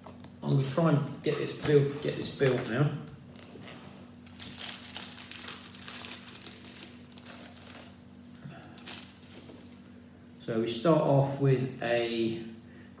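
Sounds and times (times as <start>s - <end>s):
plastic bag crinkling: 3.3s - 8.1s.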